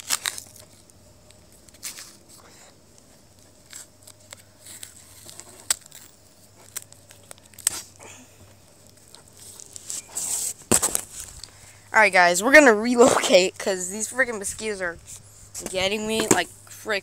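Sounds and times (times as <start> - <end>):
rustling: 0.0 - 12.0.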